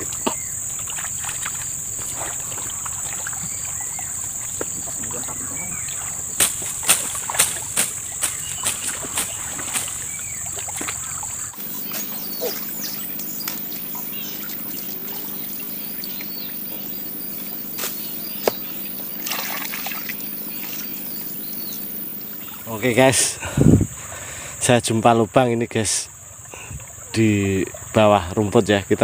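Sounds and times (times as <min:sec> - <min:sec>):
boots splashing through water: 0:00.0 - 0:22.7
water trickling: 0:00.0 - 0:23.2
high insect chirp: 0:00.0 - 0:29.0
high-pitched insect drone: 0:11.4 - 0:24.1.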